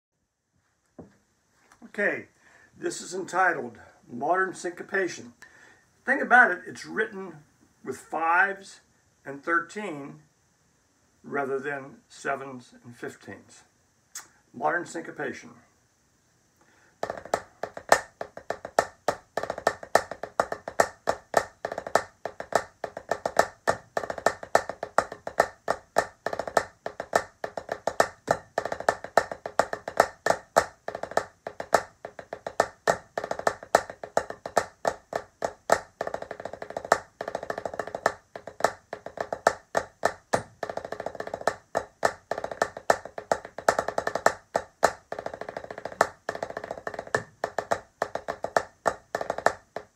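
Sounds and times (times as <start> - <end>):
drumsticks on practice pad: 17.0 - 49.9.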